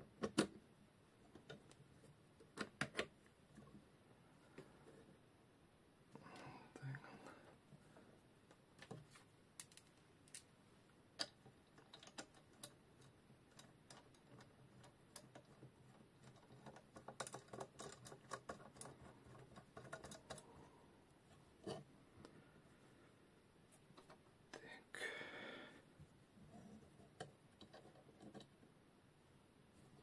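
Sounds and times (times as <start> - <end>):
small metal parts clicking: 9.6 - 10.5, 11.2 - 20.5.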